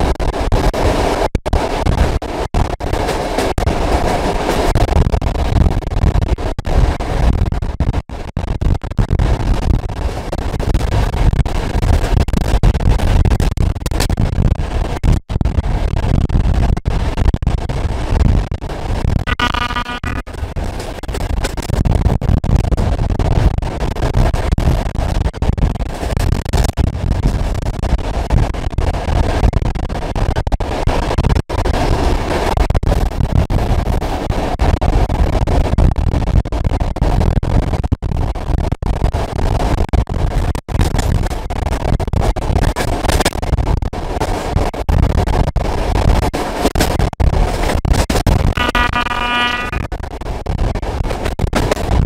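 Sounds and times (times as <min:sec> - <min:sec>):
train rumble: 0:00.7 - 0:07.4.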